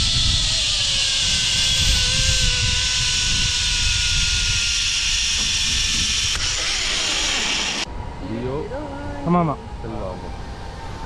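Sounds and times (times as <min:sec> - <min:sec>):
wind rumble on microphone: 0:00.0 - 0:06.4
zipline pulleys whirring on cable: 0:00.0 - 0:07.9.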